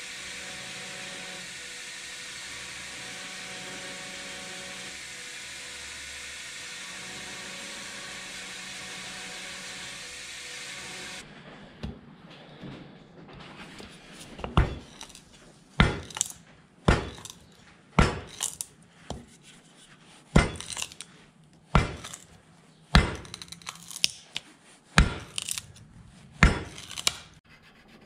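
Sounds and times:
mallet striking wood chisel: 15.8 - 19.3, 20.4 - 21.0, 21.7 - 22.2, 22.9 - 23.7, 25.0 - 25.6, 26.4 - 27.3.

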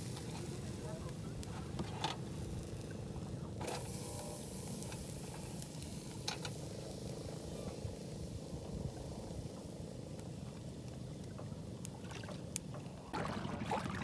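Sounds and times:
fish sizzling on grill: 0.0 - 13.0.

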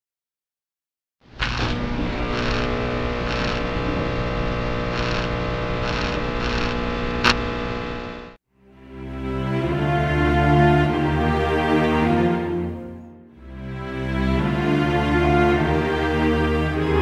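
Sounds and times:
electrical buzz: 1.3 - 8.4
electric zap: 1.4 - 7.6
hissing crackle: 1.4 - 8.4.

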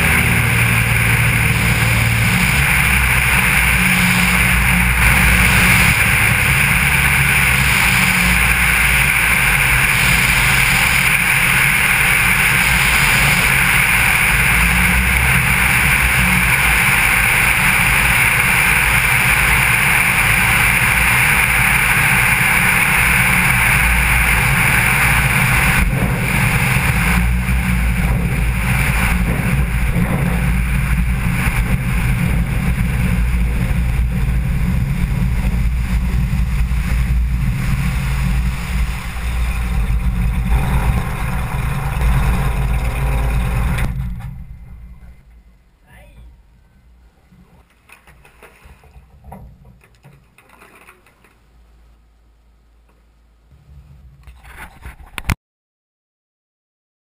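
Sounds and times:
water rushing past floats: 0.0 - 45.2
air rushing over camera: 0.0 - 45.5
propeller plane engine running: 0.0 - 47.4.

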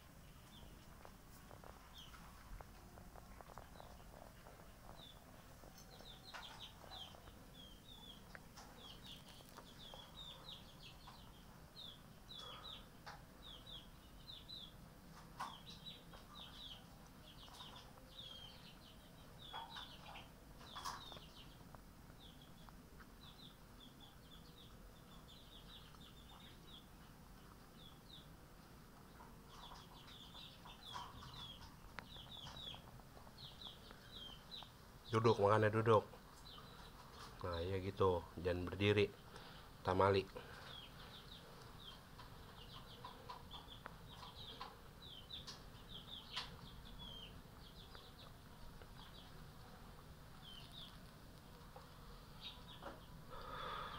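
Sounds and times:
rapid high bird chirping: 29.0 - 53.9.

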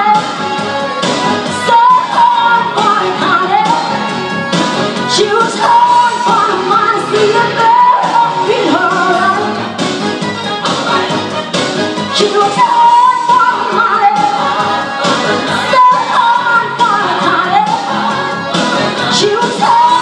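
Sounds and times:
woman singing into microphone: 0.0 - 0.6, 1.4 - 4.1, 5.0 - 9.7, 12.1 - 20.0
backing music: 0.0 - 20.0.

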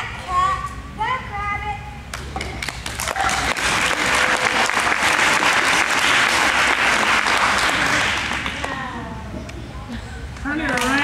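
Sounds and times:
audience applauding: 2.6 - 8.8.

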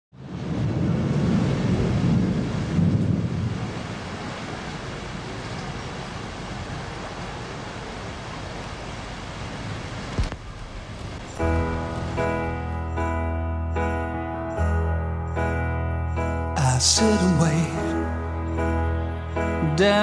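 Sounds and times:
low rumble: 9.7 - 19.5.

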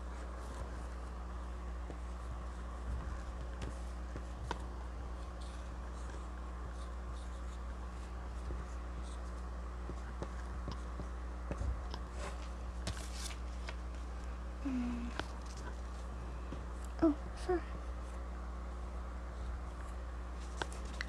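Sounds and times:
steady low hum: 0.0 - 21.0
paper card rustling: 12.2 - 14.1.

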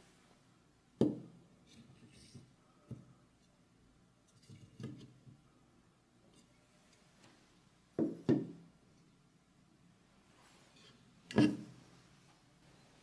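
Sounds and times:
wood knocking on wooden tabletop: 8.0 - 8.6.

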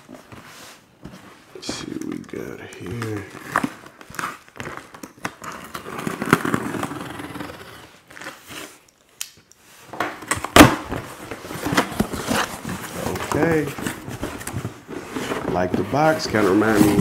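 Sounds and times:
cardboard box rustling and scraping: 11.3 - 17.0.

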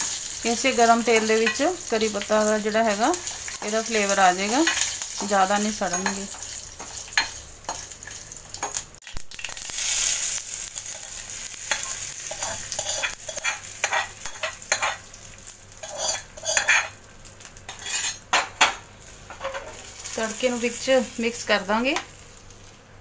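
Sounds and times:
spices sizzling in hot oil: 0.0 - 23.0
steel spoon scraping pan: 3.2 - 8.7, 10.9 - 15.1, 15.8 - 17.0, 17.7 - 18.2, 19.3 - 19.8.

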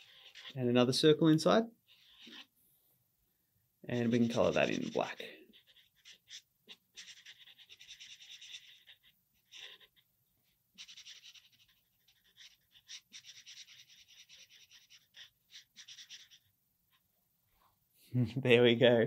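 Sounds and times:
marker scratching on paper: 0.0 - 0.6, 1.9 - 2.5, 3.9 - 17.1.

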